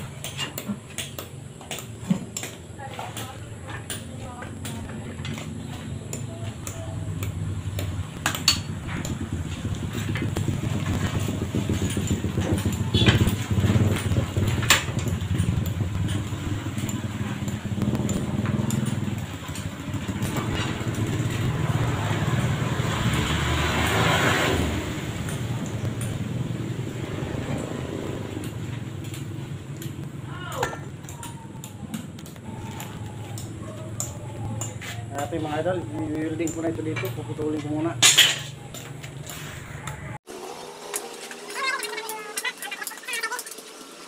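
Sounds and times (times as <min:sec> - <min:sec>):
motorcycle passing: 0:00.0 - 0:44.0
road traffic passing: 0:00.0 - 0:44.0
truck passing: 0:01.7 - 0:44.0
metal clanks of steel bar: 0:38.0 - 0:38.9.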